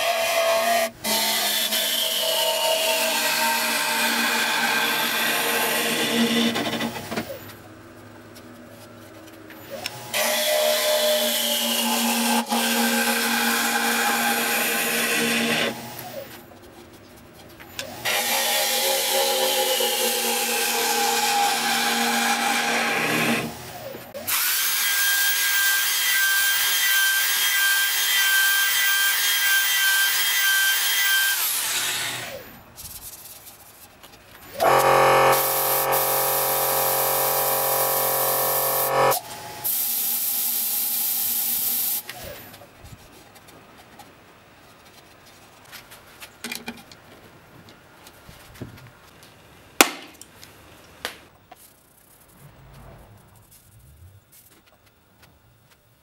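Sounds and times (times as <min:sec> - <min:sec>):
gouge cutting wood: 0:00.0 - 0:07.2
wood lathe spinning: 0:17.8 - 0:24.4, 0:34.6 - 0:39.2.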